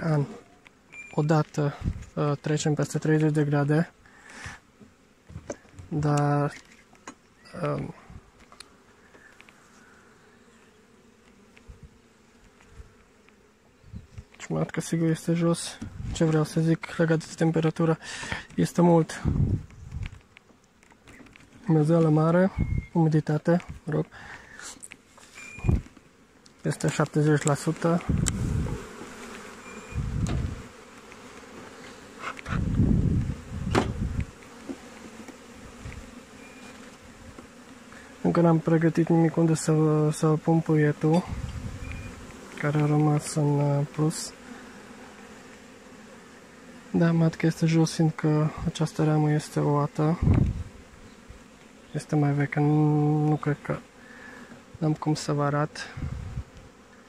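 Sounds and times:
bees buzzing: 0.0 - 57.0
low muffled rushes: 28.0 - 28.8, 30.0 - 30.6.

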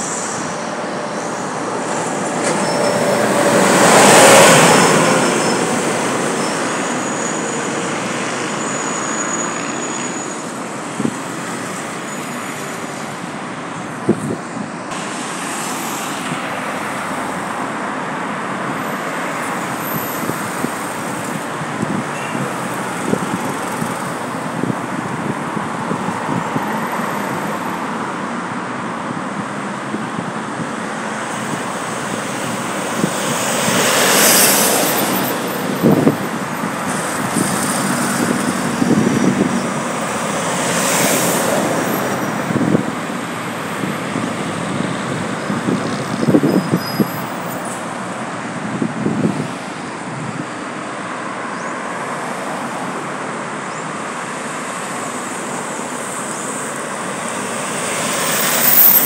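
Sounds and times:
cars driving past: 0.0 - 28.2, 29.4 - 59.0.

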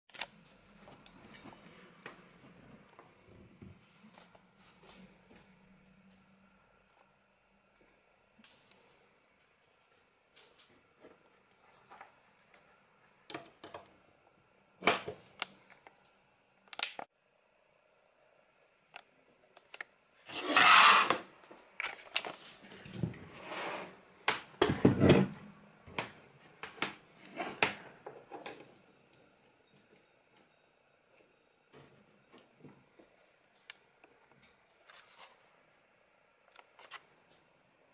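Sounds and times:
rushing scrape: 20.3 - 21.2.

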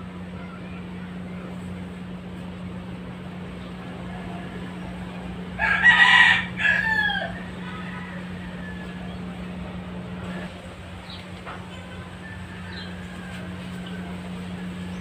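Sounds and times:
rooster crowing: 3.8 - 9.6, 11.8 - 15.0.

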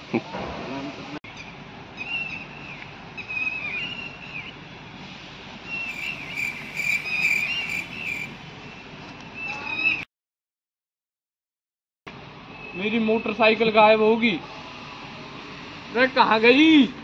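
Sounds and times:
steady outdoor hiss: 0.0 - 9.6, 12.1 - 17.0
high-pitched chirping and trilling: 5.8 - 8.3.

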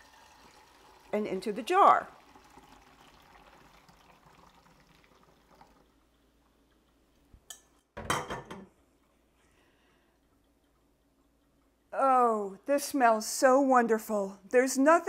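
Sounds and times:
milk trickling into a jar: 0.0 - 7.3
kitchenware clattering: 7.5 - 8.8.

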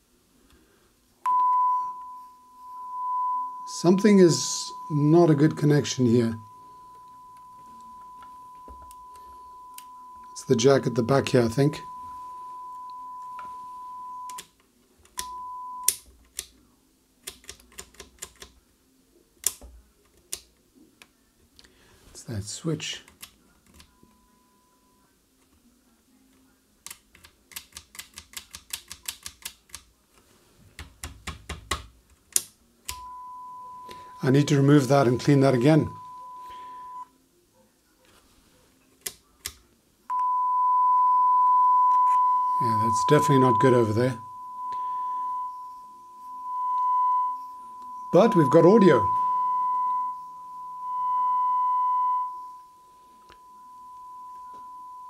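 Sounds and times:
sine-wave test tone: 1.2 - 14.5, 15.2 - 16.0, 23.8 - 25.2, 32.9 - 37.2, 40.1 - 55.0.

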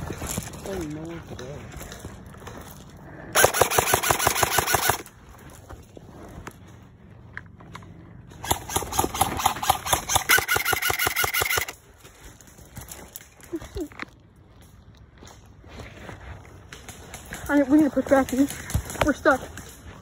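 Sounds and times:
airsoft rifle firing bursts: 3.4 - 5.1, 8.4 - 11.8.

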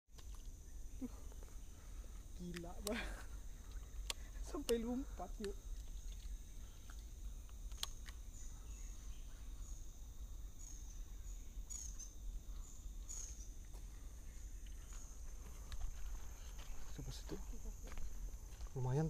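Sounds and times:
high-pitched insect drone: 0.2 - 19.0
faint clicks: 3.6 - 4.8, 5.4 - 8.2.

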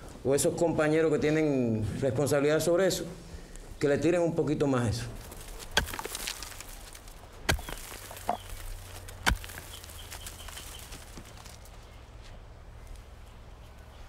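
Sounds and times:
birds chirping: 7.2 - 14.0.

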